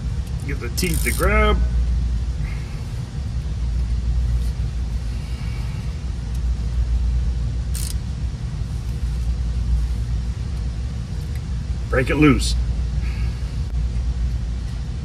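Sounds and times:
low background rumble: 0.0s - 15.0s
ratchet metallic click: 0.2s - 1.4s, 7.7s - 8.0s.

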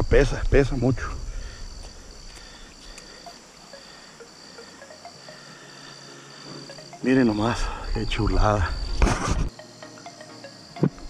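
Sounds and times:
crickets chirping: 0.0s - 11.0s
faint clicks: 1.8s - 3.4s.

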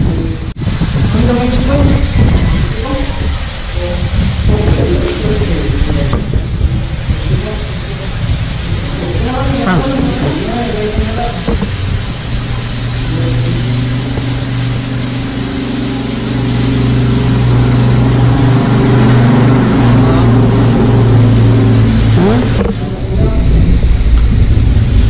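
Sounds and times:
motor engine running steadily: 9.0s - 25.0s.

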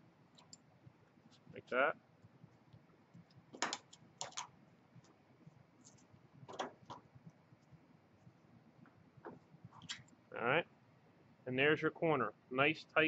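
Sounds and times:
sheet metal clicks and crinkles: 3.2s - 5.2s, 5.8s - 7.7s.

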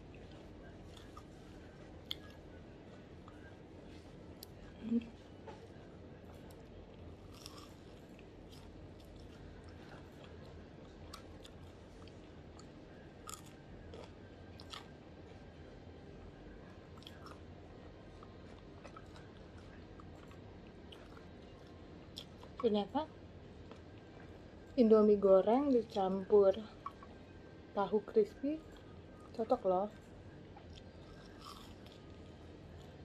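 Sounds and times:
person chewing crispy food: 6.3s - 15.0s, 16.5s - 22.6s, 30.5s - 33.0s.

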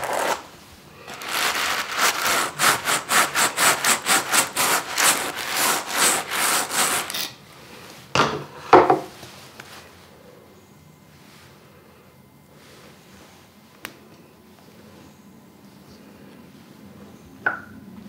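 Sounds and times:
hand cards brushing wool: 0.0s - 0.4s, 1.1s - 7.2s.

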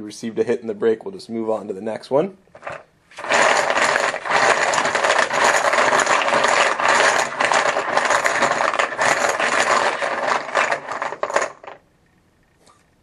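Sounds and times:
chips rattling in a tub: 2.6s - 11.8s.

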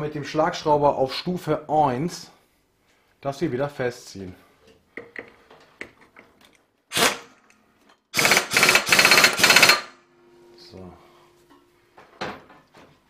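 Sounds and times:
impact wrench hammering: 8.2s - 10.0s.

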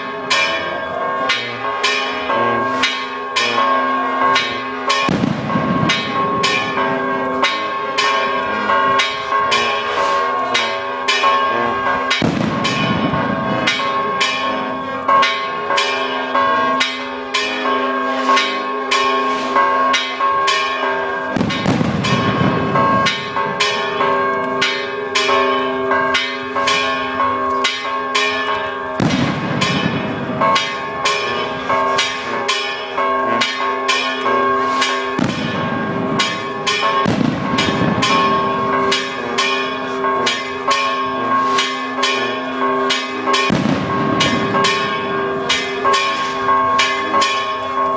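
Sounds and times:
church bells pealing: 0.0s - 47.9s.

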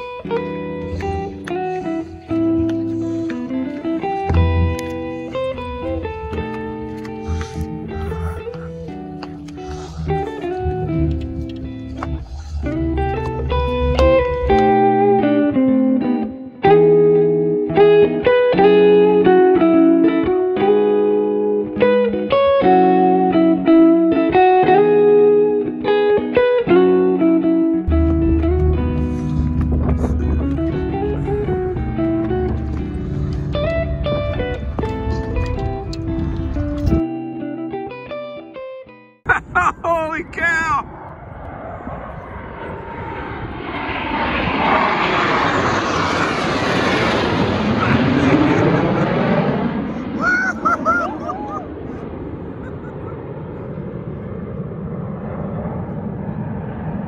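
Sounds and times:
jet engines roaring: 0.0s - 17.2s, 27.9s - 37.0s, 39.3s - 57.0s
plucked guitar tune: 0.0s - 39.2s.

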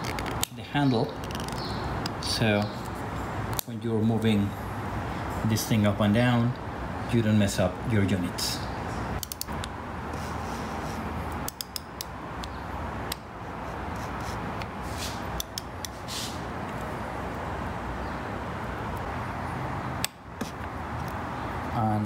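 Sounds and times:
steady hiss: 13.6s - 16.6s.

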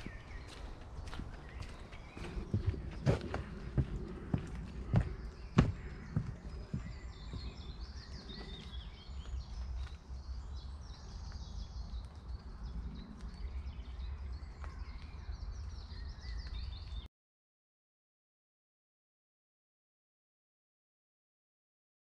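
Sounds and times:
steady low rumble: 0.0s - 16.0s
footsteps on paved path: 0.0s - 17.1s
small birds chirping: 0.0s - 17.1s.

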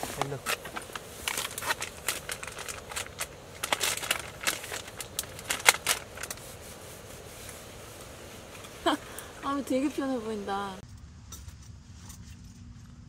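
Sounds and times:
plastic packet crinkling: 0.2s - 6.4s.

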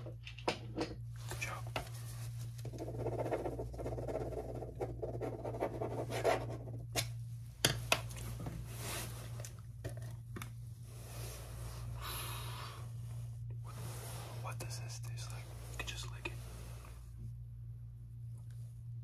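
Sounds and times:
scratching and rustling on microphone: 1.2s - 4.5s.

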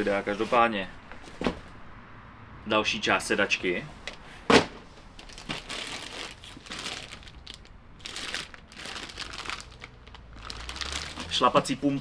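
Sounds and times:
packaging crinkling and rustling: 5.2s - 11.8s.

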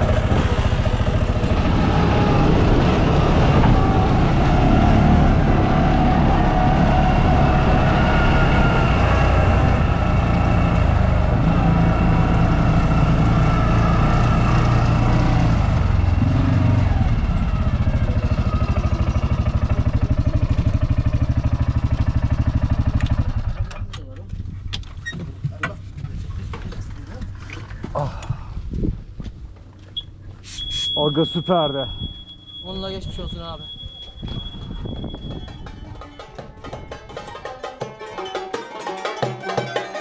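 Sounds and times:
off-road vehicle engine running: 0.0s - 29.7s.

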